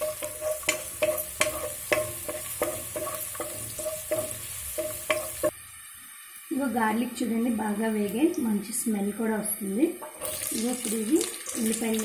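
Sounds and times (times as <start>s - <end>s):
spoon knocking against pot: 0.0s - 5.5s
vegetables sizzling in hot oil: 0.0s - 12.0s.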